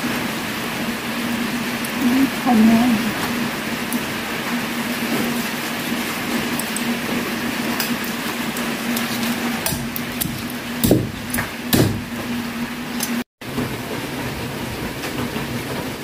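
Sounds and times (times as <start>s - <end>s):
rain hissing: 0.0s - 10.8s
cleaver chopping on wooden block: 9.6s - 12.1s.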